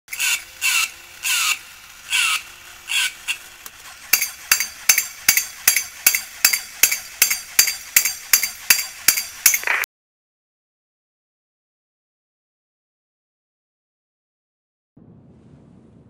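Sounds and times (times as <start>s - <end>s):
toy chimp squealing: 0.1s - 3.4s
toy cymbals clashing: 0.1s - 9.7s.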